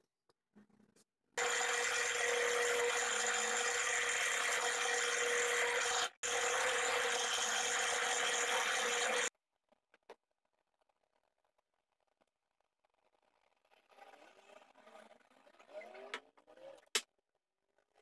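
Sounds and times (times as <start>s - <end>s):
drill bit cutting wood: 1.4s - 9.3s
drill press motor whine: 1.4s - 9.3s.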